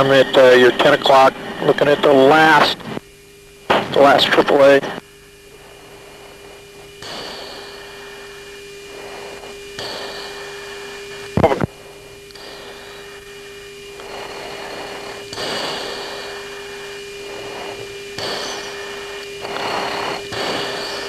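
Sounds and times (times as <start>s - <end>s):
steady radio hum: 0.0s - 21.0s
swells of hiss: 5.9s - 11.4s, 12.0s - 21.0s.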